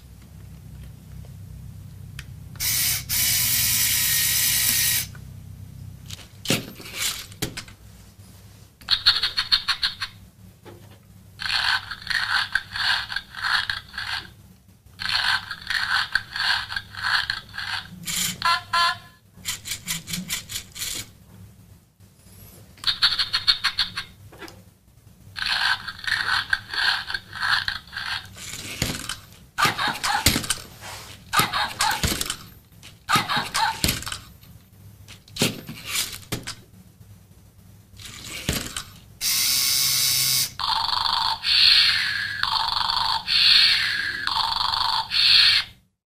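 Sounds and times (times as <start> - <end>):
robot motors whirring and ratcheting: 2.6 - 5.1, 19.4 - 21.1, 38.0 - 40.5.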